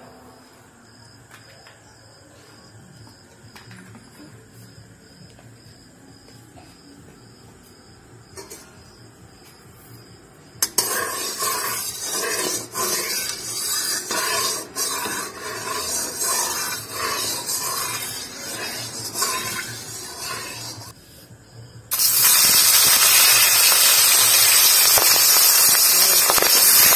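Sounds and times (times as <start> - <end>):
metal spatula scraping pan: 10.6 - 21.0.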